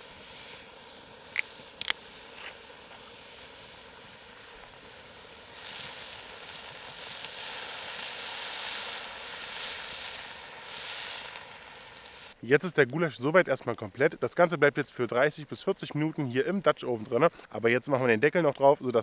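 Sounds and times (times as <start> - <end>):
meat sizzling in a pot: 0.0 - 12.4.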